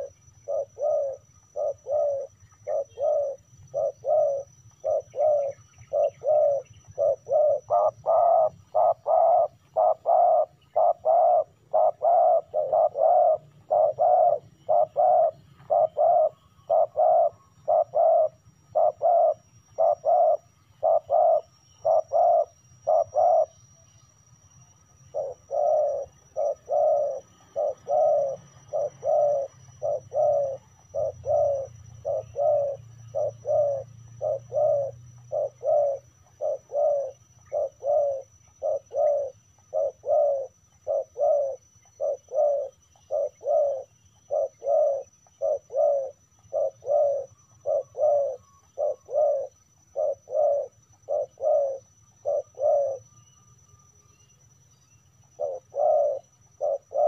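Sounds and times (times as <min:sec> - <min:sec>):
dove cooing: 0:00.0 - 0:53.2, 0:55.2 - 0:57.0.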